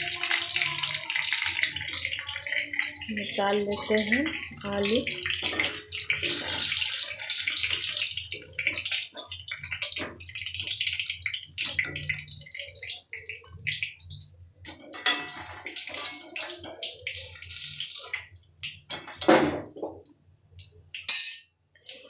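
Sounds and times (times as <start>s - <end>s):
potatoes sizzling in hot oil: 0.0s - 19.2s
spoon clinking and scraping pan: 14.7s - 16.9s.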